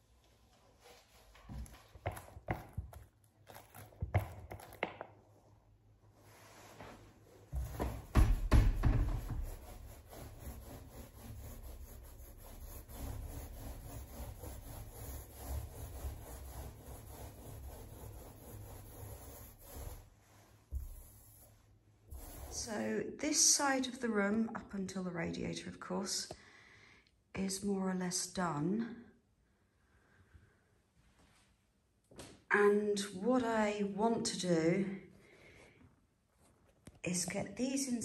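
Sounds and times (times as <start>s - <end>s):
paint roller rubbing on wood: 7.5s - 22.9s.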